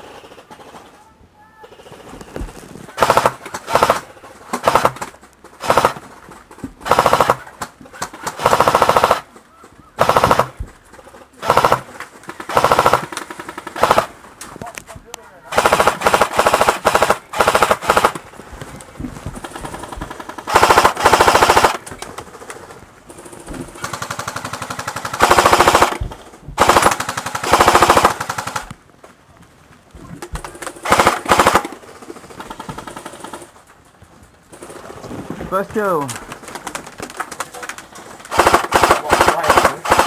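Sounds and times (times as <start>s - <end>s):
distant airsoft gunfire: 1.7s - 6.1s, 6.8s - 9.3s, 10.0s - 10.6s, 11.4s - 14.2s, 15.5s - 18.2s, 19.4s - 21.8s, 23.7s - 28.7s, 30.4s - 33.5s, 38.3s - 40.0s
airsoft gun full-auto bursts: 3.0s - 6.1s, 6.8s - 9.3s, 10.0s - 14.2s, 15.5s - 18.3s, 19.4s - 28.7s, 30.5s - 33.5s, 38.3s - 40.0s.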